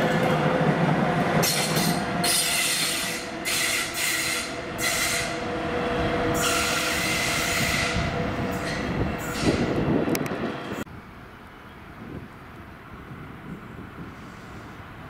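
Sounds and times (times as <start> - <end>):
train running rumble: 0.0 - 11.2
train wheels squealing: 1.4 - 5.5, 6.3 - 9.7.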